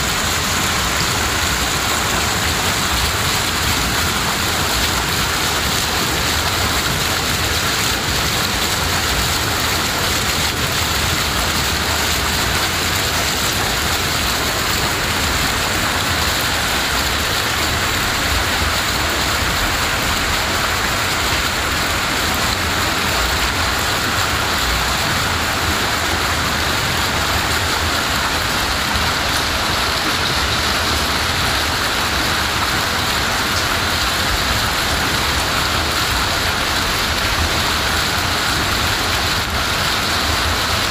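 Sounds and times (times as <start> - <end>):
heavy rain on floodwater: 0.0 - 40.9.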